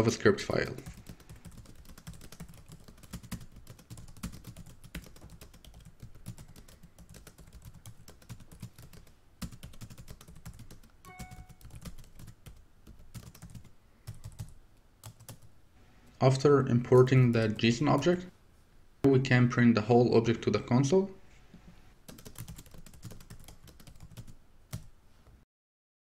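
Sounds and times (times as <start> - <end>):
short steady tone: 11.1 - 11.7.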